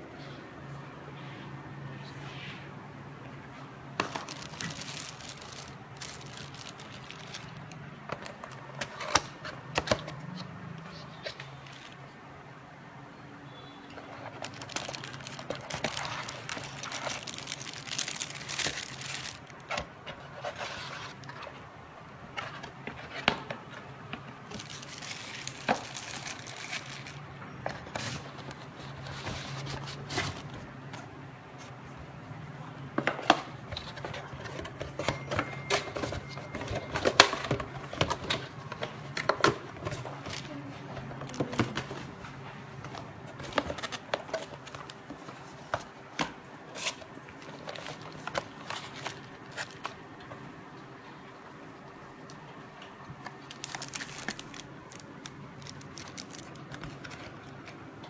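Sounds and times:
cardboard and plastic rustling: 0:03.5 - 0:12.2, 0:14.0 - 0:32.0, 0:32.9 - 0:51.2, 0:51.8 - 0:58.0.

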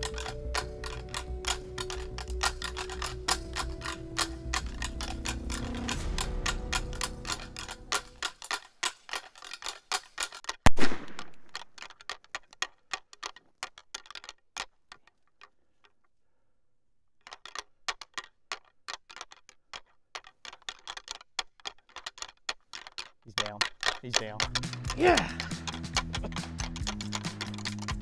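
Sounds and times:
quick ticking: 0:00.0 - 0:10.6, 0:17.2 - 0:28.0
revolver gunshot: 0:10.7 - 0:11.4.

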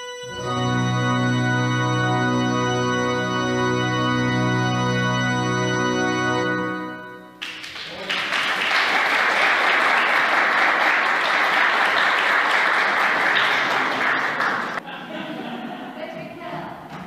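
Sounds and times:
electronic organ chord: 0:00.0 - 0:07.4
audience applauding: 0:07.4 - 0:14.8.

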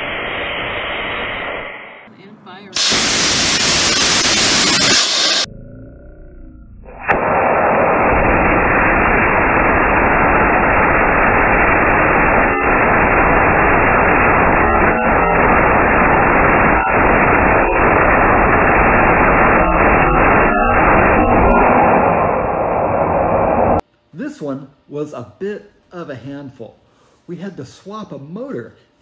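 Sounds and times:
rocket engine exhaust rushing: 0:02.8 - 0:05.5, 0:07.0 - 0:23.8.

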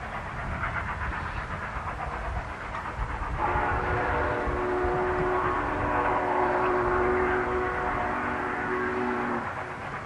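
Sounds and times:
steam train rumbling: 0:00.0 - 0:10.0
locomotive chime whistle: 0:03.4 - 0:09.6.

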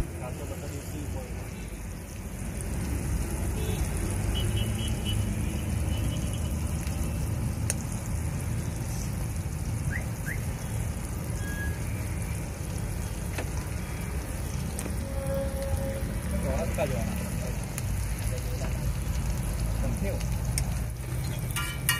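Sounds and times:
egg sizzling in butter: 0:00.8 - 0:21.9.

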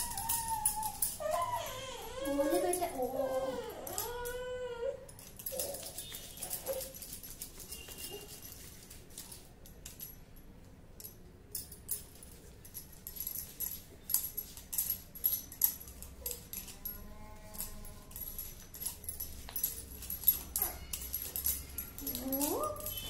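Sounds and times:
baby whimpering: 0:00.0 - 0:05.8
bangles clinking and jingling: 0:00.0 - 0:23.0.

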